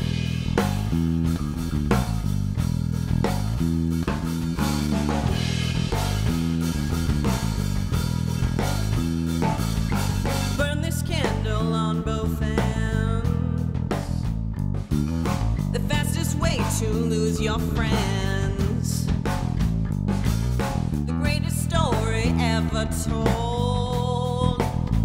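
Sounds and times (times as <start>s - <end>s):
bass guitar: 0.0s - 25.0s
drum kit groove: 0.0s - 25.0s.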